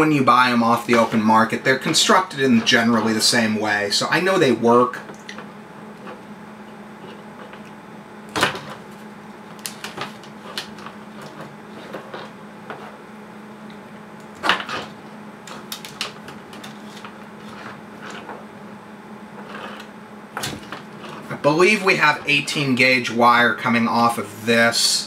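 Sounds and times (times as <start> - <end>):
steady low hum: 0.0 - 25.0
wires and connectors clicking: 9.5 - 11.4, 15.4 - 17.2.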